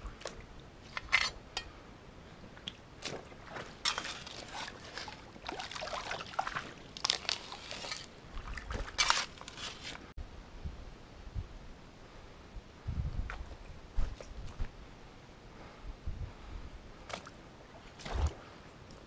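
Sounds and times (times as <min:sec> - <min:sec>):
creek water splashing: 0:02.6 - 0:10.0.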